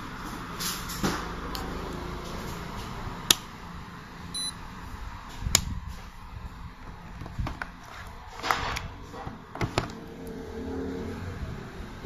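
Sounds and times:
faint high beep: 0:04.3 - 0:04.6.

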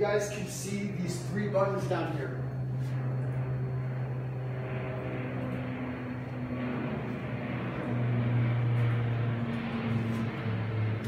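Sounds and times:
faint steady tones: 0:00.0 - 0:11.0
low machine hum: 0:00.0 - 0:11.0.

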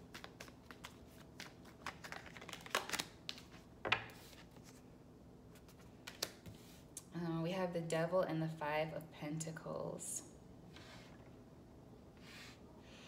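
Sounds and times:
cards being shuffled: 0:00.0 - 0:04.8, 0:05.5 - 0:06.8.

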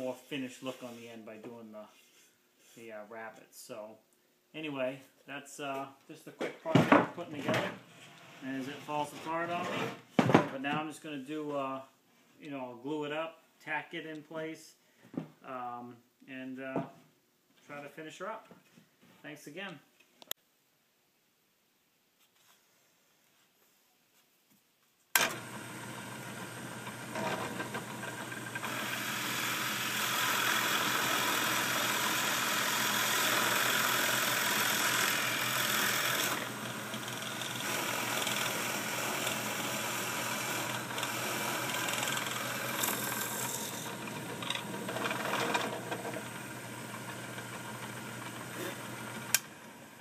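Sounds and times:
drill bit boring into wood: 0:25.2 - 0:49.8
drill press motor running: 0:25.2 - 0:50.0.

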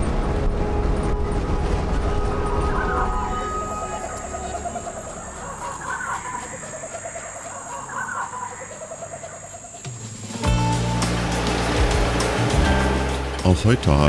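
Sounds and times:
bird calls: 0:02.3 - 0:10.6.

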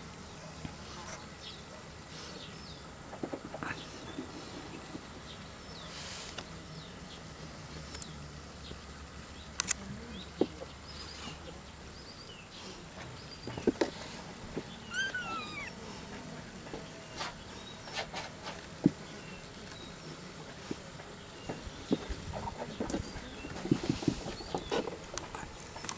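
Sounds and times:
kitten mewing: 0:14.8 - 0:15.8.

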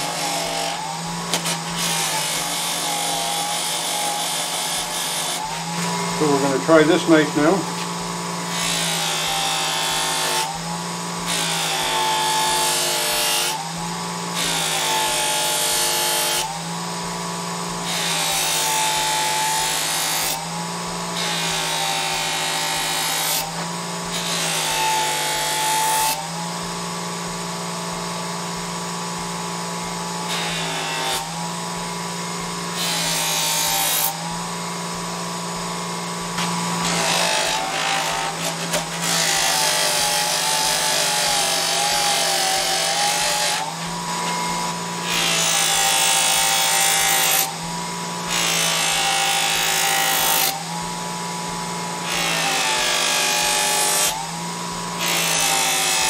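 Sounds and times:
bench buffer motor hum: 0:00.0 - 0:56.0.

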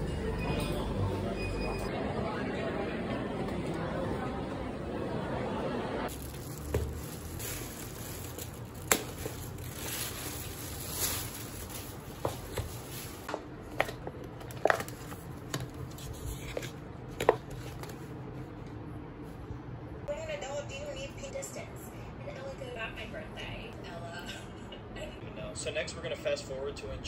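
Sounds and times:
plastic lid crinkling: 0:06.1 - 0:15.8.

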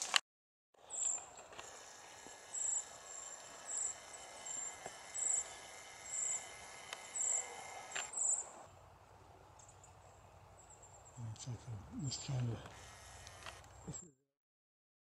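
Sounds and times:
background insect sound: 0:00.9 - 0:08.7
high-pitched insect chirps: 0:02.5 - 0:07.6.

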